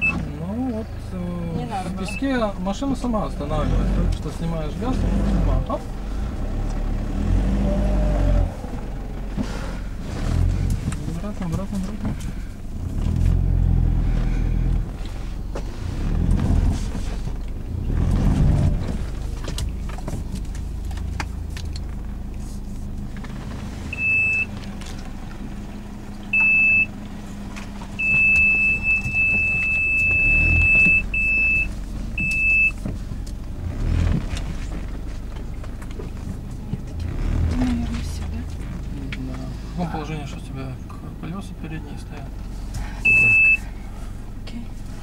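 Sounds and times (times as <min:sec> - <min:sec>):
electronic car beeps: 0:00.0 - 0:00.2, 0:02.0 - 0:02.3, 0:23.9 - 0:24.5, 0:26.3 - 0:26.9, 0:28.0 - 0:32.8, 0:43.0 - 0:43.7
car engine running: 0:00.0 - 0:45.0.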